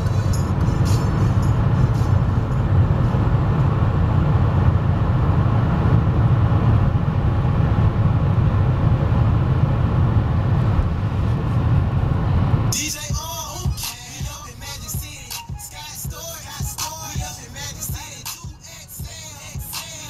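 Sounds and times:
car cabin road rumble: 0.0s - 20.0s.

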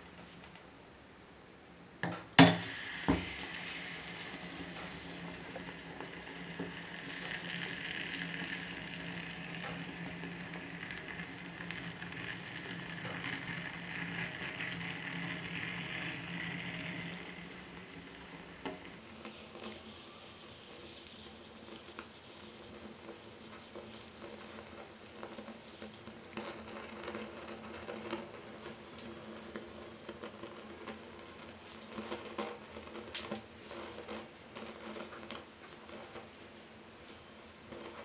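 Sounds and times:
metal ball knocking down: 2.0s - 3.2s
hot metal sizzling: 2.4s - 38.0s.

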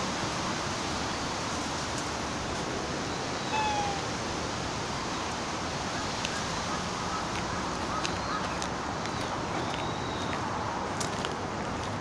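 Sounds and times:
short falling call: 3.5s - 4.1s.

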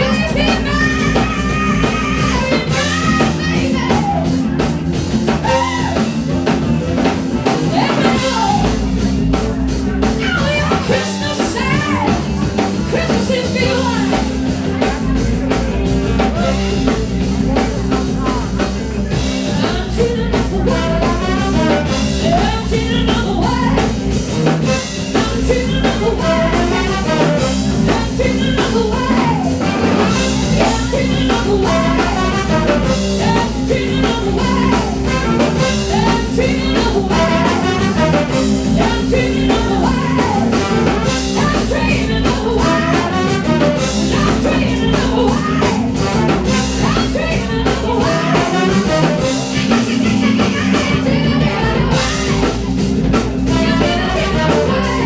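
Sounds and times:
woman singing: 0.0s - 4.6s, 5.4s - 6.2s, 7.4s - 8.9s, 10.1s - 15.6s, 17.4s - 52.7s, 53.5s - 55.0s
drum kit: 0.0s - 55.0s
electric bass: 0.0s - 55.0s
electric guitar: 0.0s - 55.0s
horn section: 19.0s - 55.0s.

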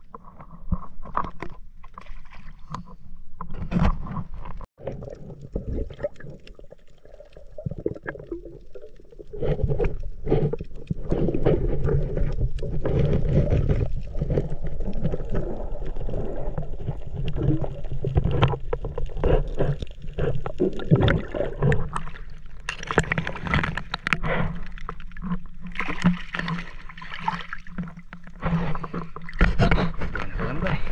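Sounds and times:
muffled underwater sloshing: 0.0s - 30.9s
knocks and scrapes on gravel: 27.7s - 30.9s.

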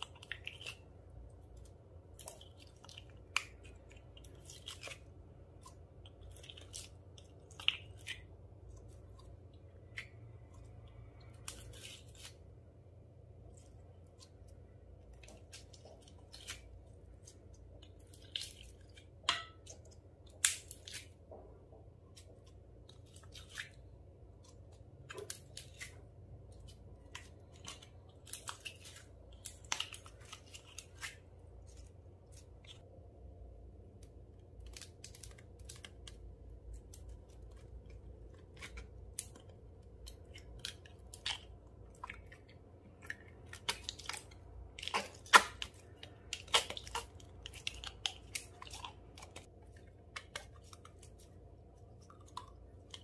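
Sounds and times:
slime squished by hand: 34.0s - 53.0s.

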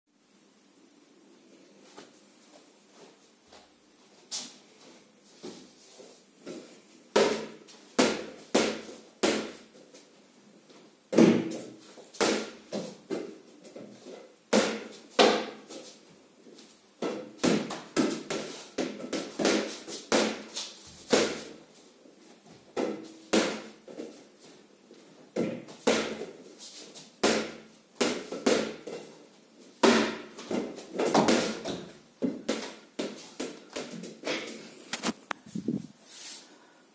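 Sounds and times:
basketball bouncing on hard floor: 11.1s - 13.3s, 25.4s - 26.4s, 29.8s - 34.1s
basketball hitting backboard and rim: 11.1s - 13.3s, 14.5s - 15.6s, 17.0s - 20.5s, 29.8s - 33.2s.

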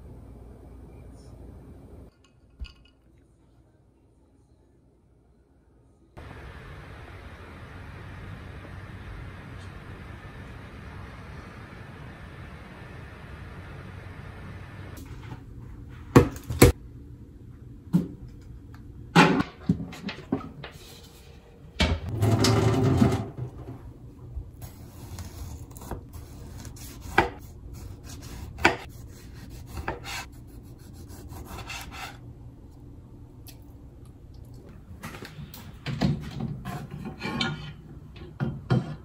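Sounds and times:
knife slicing tomato: 24.6s - 32.2s.

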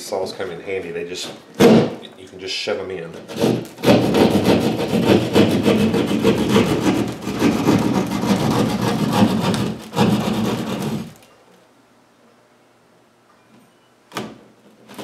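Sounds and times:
hand saw cutting drywall: 3.1s - 11.2s.

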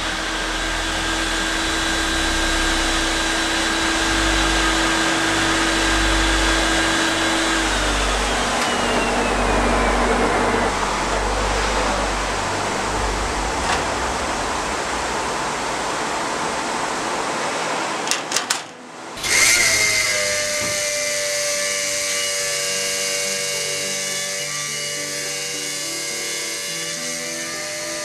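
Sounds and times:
background music: 0.0s - 18.0s, 18.7s - 28.0s
high machine whine: 0.0s - 18.1s, 18.8s - 28.0s
steady rushing noise: 0.0s - 21.2s.

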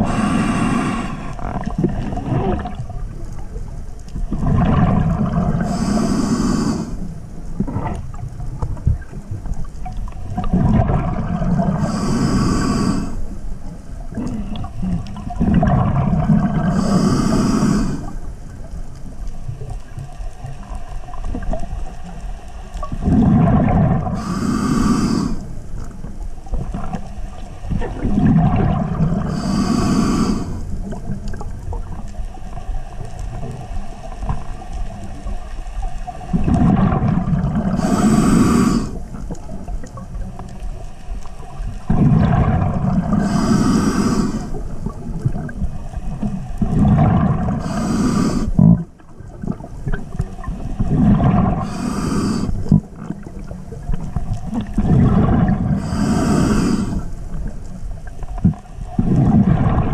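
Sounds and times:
diver breathing through regulator: 0.0s - 2.3s, 5.1s - 7.1s, 11.4s - 13.4s, 16.4s - 18.3s, 23.0s - 25.7s, 29.1s - 30.8s, 37.6s - 39.2s, 42.9s - 48.8s, 50.5s - 53.3s, 54.6s - 57.5s
low underwater rumble: 0.0s - 24.3s, 25.1s - 59.9s.

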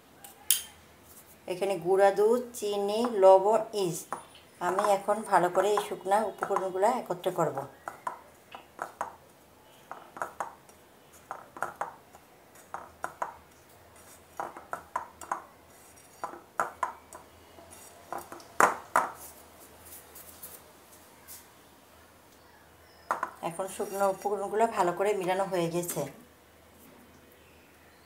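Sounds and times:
hand mixing flour in a bowl: 9.8s - 16.8s, 17.7s - 18.3s, 18.9s - 20.7s, 23.5s - 24.5s.

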